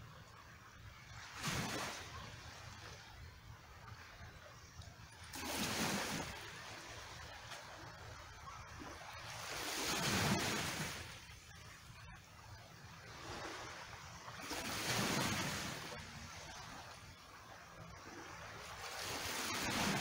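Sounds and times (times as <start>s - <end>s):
small waves sloshing among rocks: 1.1s - 3.2s, 5.0s - 11.8s, 13.0s - 20.0s.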